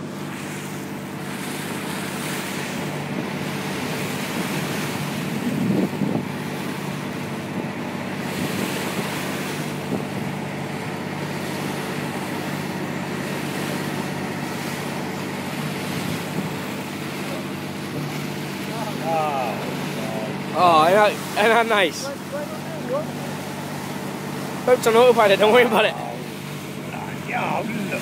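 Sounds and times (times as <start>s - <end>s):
boat engine running: 0.0s - 28.0s
bow wave splashing: 0.0s - 28.0s
wind on microphone: 3.1s - 10.5s, 14.8s - 17.1s.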